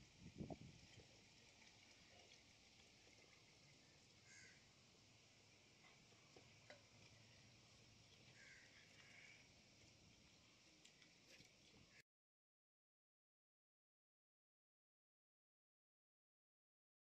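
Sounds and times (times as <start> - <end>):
steady faint hiss: 0.0 - 12.0
faint animal calls: 4.2 - 4.7, 8.3 - 9.6.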